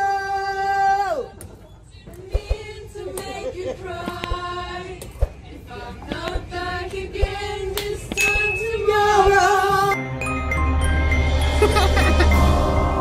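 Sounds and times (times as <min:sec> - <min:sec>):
group of people singing: 0:02.0 - 0:10.2.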